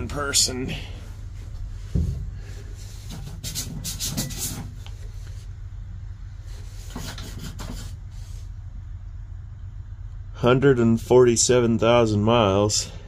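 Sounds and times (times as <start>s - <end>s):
hand rubbing dashboard: 1.1s - 5.7s, 6.4s - 8.6s.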